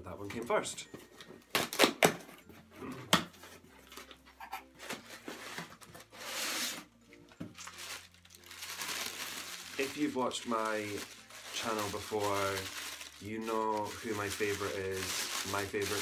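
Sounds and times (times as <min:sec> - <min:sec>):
paper wrap rustling and crinkling: 0:03.4 - 0:16.0.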